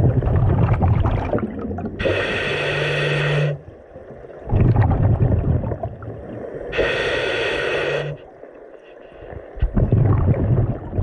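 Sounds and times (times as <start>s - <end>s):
bubbling exhaled air: 0.0s - 3.6s, 4.5s - 8.2s, 9.6s - 11.0s
hissing regulator inhalation: 2.0s - 3.6s, 6.8s - 8.2s.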